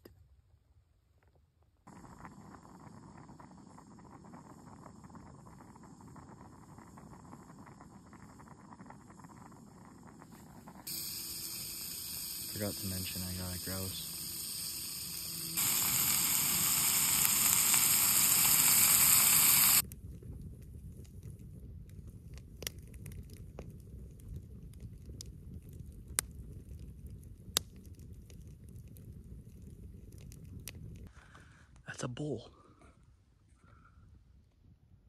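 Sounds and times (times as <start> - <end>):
campfire crackling and popping: 1.2 - 31.1
loud steady hiss: 10.4 - 19.8.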